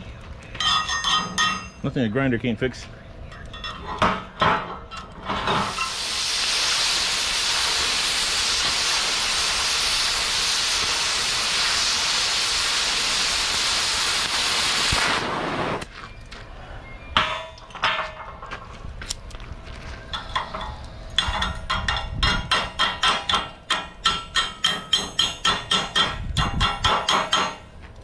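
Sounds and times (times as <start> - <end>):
cutting torch hissing: 5.4 - 15.9.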